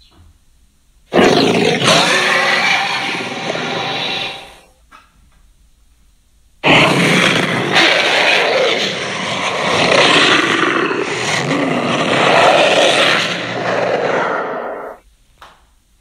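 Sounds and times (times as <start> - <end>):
loud monster roar: 1.1 - 4.6, 6.6 - 15.0.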